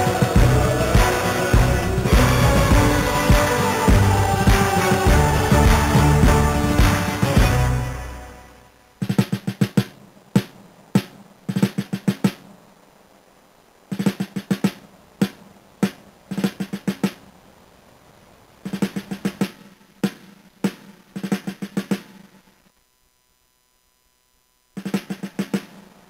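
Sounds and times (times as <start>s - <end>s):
drum hits: 0.0s - 7.9s, 9.0s - 12.4s.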